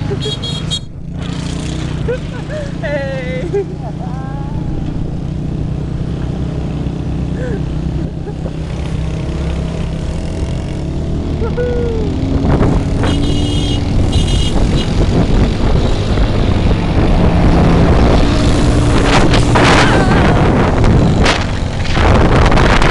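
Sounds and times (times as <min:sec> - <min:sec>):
motorcycle engine running: 0:00.0 - 0:22.9
wind buffeting microphone: 0:11.8 - 0:22.9.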